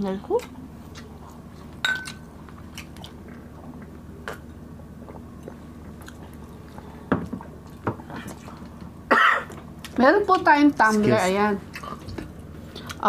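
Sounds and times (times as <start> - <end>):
glass mugs clinking: 1.8 - 2.2.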